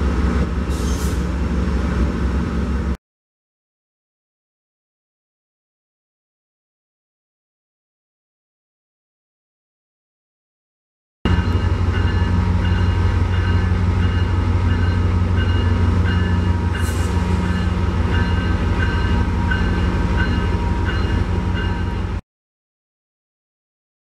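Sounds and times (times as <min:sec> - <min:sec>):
diesel locomotive engine drone: 0:00.0 - 0:03.0, 0:11.3 - 0:22.2.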